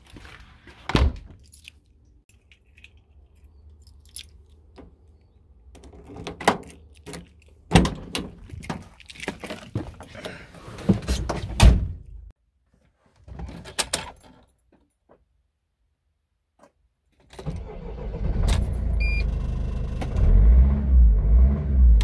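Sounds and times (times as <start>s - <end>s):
keys jingling: 1.4s - 4.8s, 6.6s - 7.7s, 8.3s - 9.7s.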